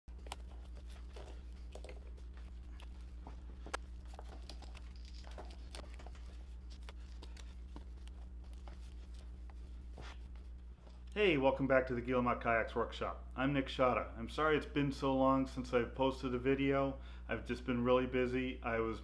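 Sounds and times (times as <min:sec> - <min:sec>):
plastic wrap crinkling: 0:00.1 - 0:10.6
low hum: 0:00.1 - 0:12.3.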